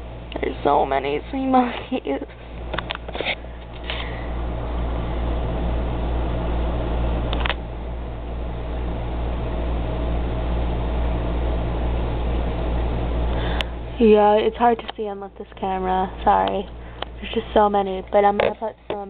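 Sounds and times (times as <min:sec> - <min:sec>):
low hum and hiss: 0:00.0 - 0:19.0
single click: 0:07.3 - 0:07.6.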